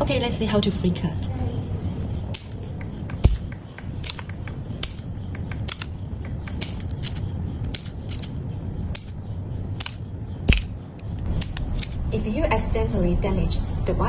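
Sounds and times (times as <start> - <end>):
scissors snipping: 2.3 - 8.3, 9.8 - 10.7, 11.3 - 12.0.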